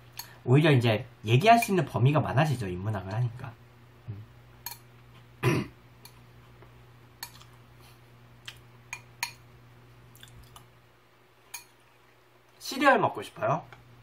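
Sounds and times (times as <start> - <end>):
low steady hum: 0.0 - 14.0
metal spoon clicking in ceramic bowl: 4.6 - 4.8
man clearing his throat: 5.4 - 5.8.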